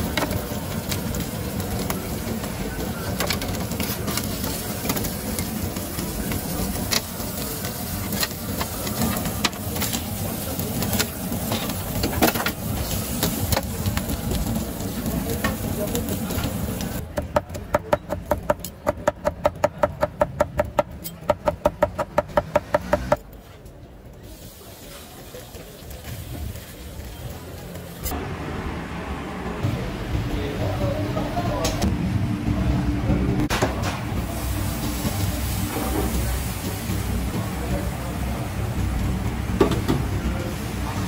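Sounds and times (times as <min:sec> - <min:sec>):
food sizzling: 0:00.0 - 0:17.0, 0:34.2 - 0:41.0
voices: 0:23.6 - 0:33.5.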